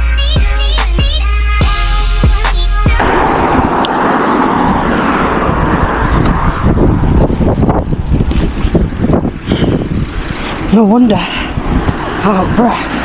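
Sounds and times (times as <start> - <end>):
bicycle tyre noise: 3.0 - 13.0
wind rushing over microphone: 3.0 - 13.0.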